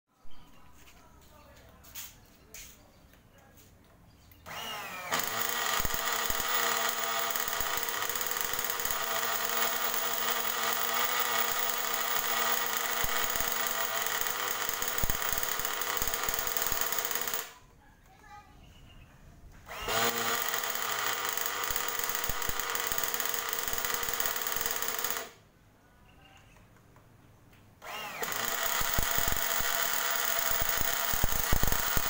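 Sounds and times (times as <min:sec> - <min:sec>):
model engine starter whine: 0:04.4 - 0:17.5, 0:19.7 - 0:25.4, 0:27.8 - 0:32.0.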